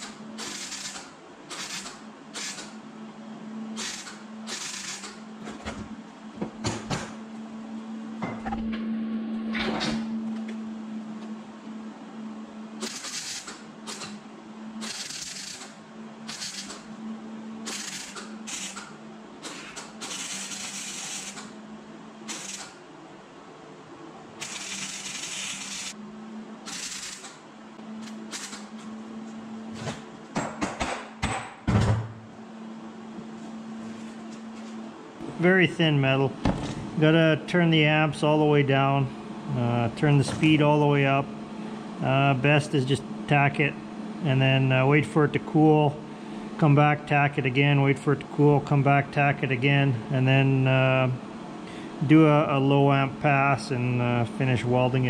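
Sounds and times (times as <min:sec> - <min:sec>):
welding arc crackle: 0:12.8 - 0:14.1, 0:14.8 - 0:15.7, 0:22.3 - 0:22.7, 0:24.4 - 0:26.0, 0:26.7 - 0:27.3
welder low hum: 0:20.0 - 0:29.7.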